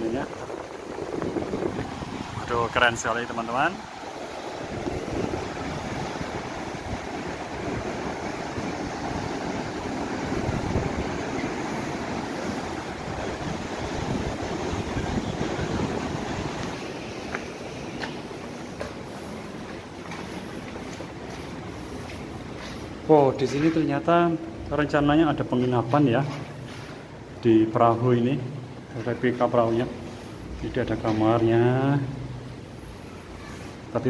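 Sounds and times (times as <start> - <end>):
wind buffeting microphone: 0.0 - 19.3
breaking surf: 0.0 - 23.9.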